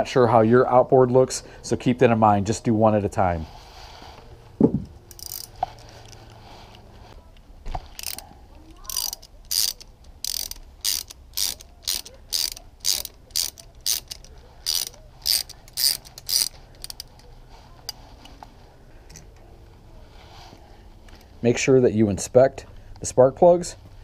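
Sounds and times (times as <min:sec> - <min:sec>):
ratchet wrench clicking: 0:05.0 - 0:05.6, 0:08.0 - 0:08.2, 0:08.8 - 0:17.2.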